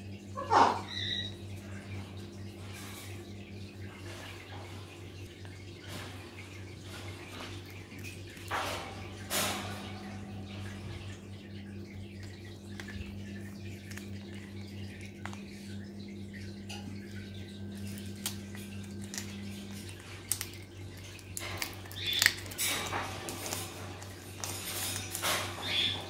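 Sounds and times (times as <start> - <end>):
parrot beak crunching bark: 18.2 - 26.0.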